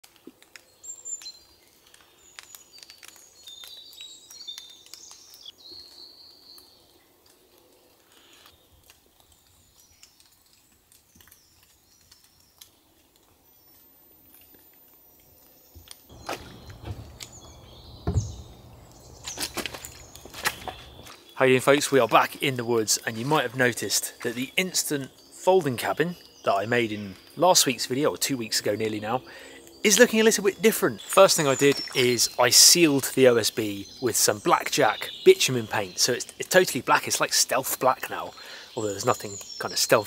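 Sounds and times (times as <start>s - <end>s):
rain dripping: 0.0s - 14.9s, 16.1s - 40.0s
birds chirping faintly: 14.9s - 40.0s
rustling: 16.1s - 21.3s
heavy knock: 16.2s - 19.0s.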